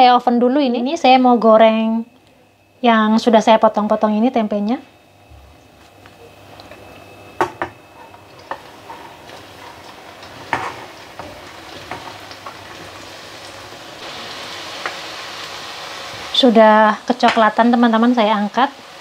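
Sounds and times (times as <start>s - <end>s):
food deep-frying in hot oil: 5.6s - 19.0s
sharp pops in frying oil: 14.8s - 15.0s, 17.2s - 17.6s.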